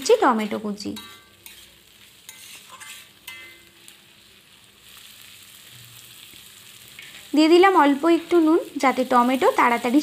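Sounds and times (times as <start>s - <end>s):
onions and tomatoes sizzling in oil: 0.0s - 10.0s
spatula scraping a pan: 0.9s - 3.8s.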